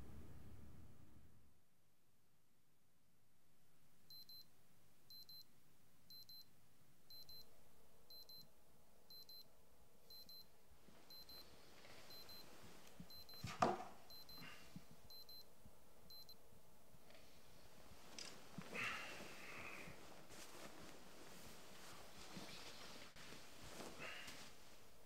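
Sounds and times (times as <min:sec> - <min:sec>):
alarm clock beeping: 0:11.1 - 0:11.4, 0:12.1 - 0:12.4, 0:13.1 - 0:13.4, 0:14.1 - 0:14.4, 0:15.1 - 0:15.4, 0:16.1 - 0:16.4
rustling under a duvet: 0:17.4 - 0:25.0.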